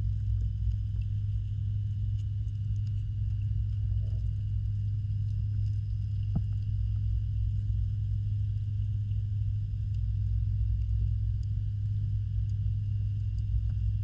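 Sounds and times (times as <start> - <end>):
underwater pump hum: 0.0 - 14.0
faint ticks: 0.1 - 7.7, 8.5 - 14.0.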